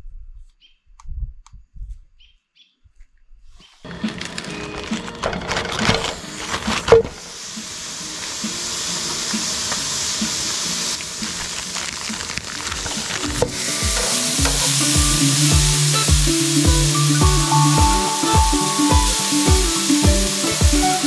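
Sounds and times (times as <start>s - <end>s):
steaks sizzling in frying pan: 6.2s - 21.0s
background music with steady beat: 13.6s - 21.0s.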